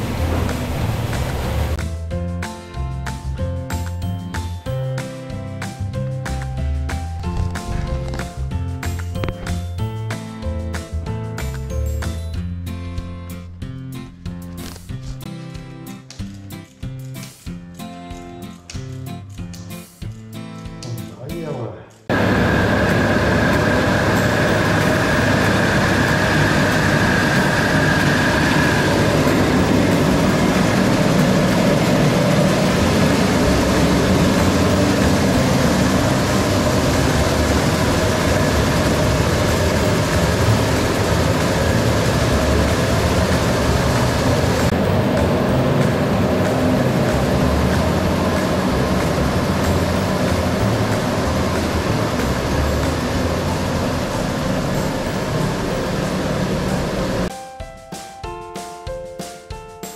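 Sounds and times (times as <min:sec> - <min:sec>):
high steady whine: 0:22.1 - 0:57.3
loud mechanical din of machinery: 0:22.1 - 0:57.3.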